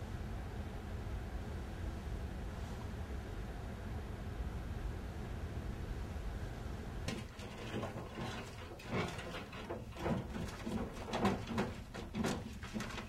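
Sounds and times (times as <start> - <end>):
low room noise: 0.0 - 13.0
clicks and knocks at a desk: 7.1 - 13.0.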